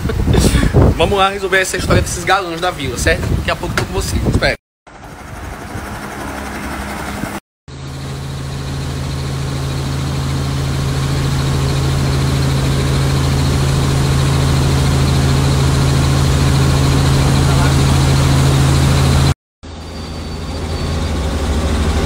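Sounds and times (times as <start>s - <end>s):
helicopter engine and rotor drone: 4.9s - 22.0s.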